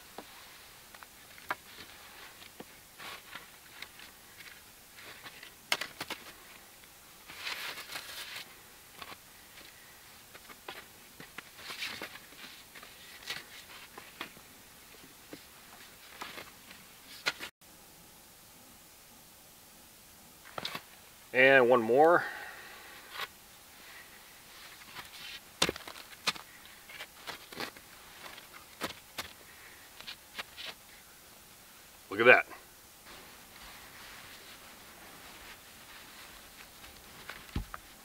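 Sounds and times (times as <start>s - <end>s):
wooden sticks knocking and scraping: 0.0s - 6.6s
handling rustling: 0.0s - 17.5s, 23.1s - 30.9s, 33.1s - 38.0s.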